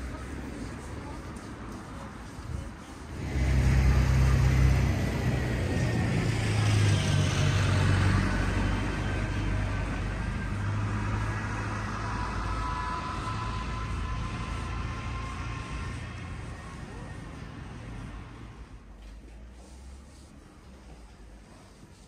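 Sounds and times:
vehicle passing by: 3.0 - 18.9.

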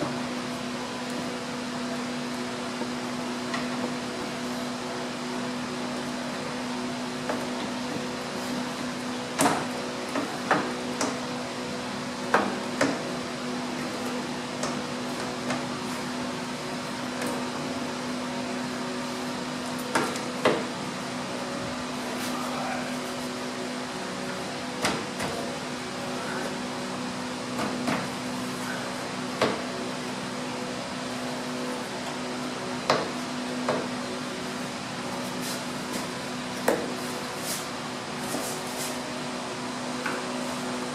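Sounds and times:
steady electric hum: 0.0 - 40.9.

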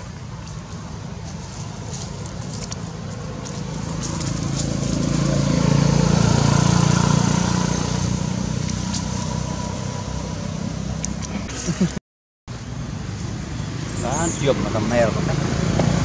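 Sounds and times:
vehicle engine passing: 0.0 - 11.9, 12.8 - 16.0.

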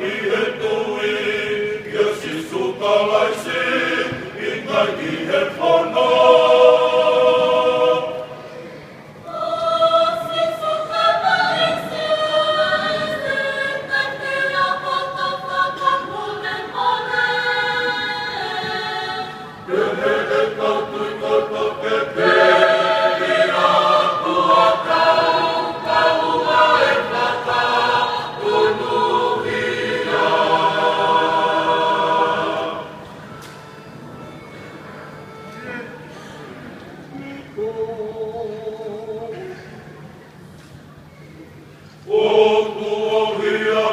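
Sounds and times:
choir singing in harmony: 0.0 - 34.6, 37.5 - 39.7, 42.0 - 43.9.

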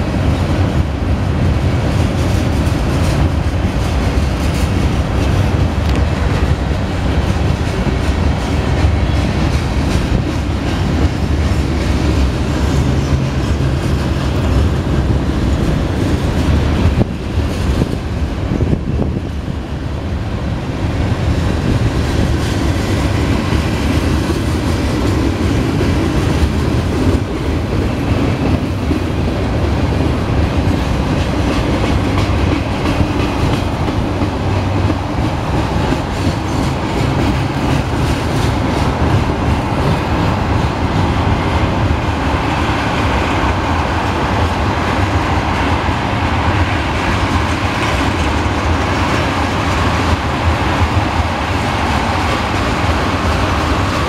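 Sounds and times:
freight train rolling past: 0.0 - 54.0.

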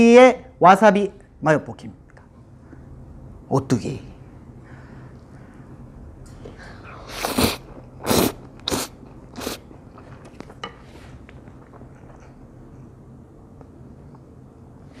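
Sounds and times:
person slurping noodles: 6.8 - 10.3.

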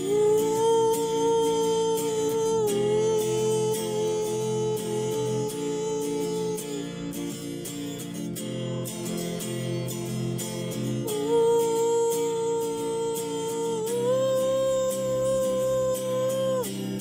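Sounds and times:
long held melody note: 0.0 - 7.3, 11.0 - 16.7
strummed acoustic guitar: 0.0 - 17.0.

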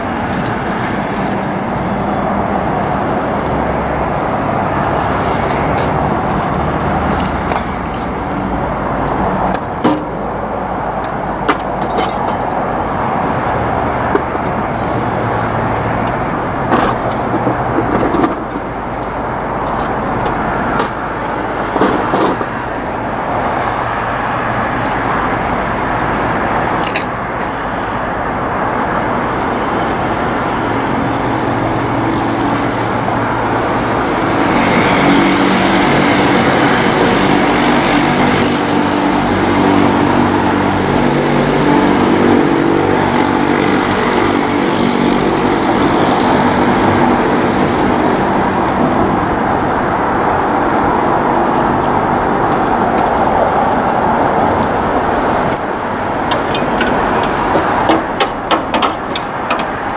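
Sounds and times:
street traffic noise: 0.0 - 59.9
vehicle engine running nearby: 0.0 - 59.9.

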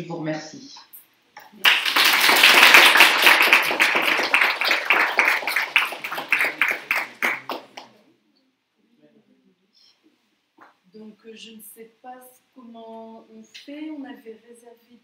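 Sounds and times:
audience applauding: 1.4 - 7.9.

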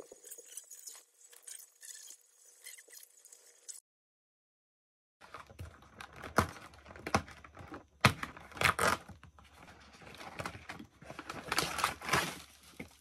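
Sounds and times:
crinkly rustling: 9.5 - 13.0.

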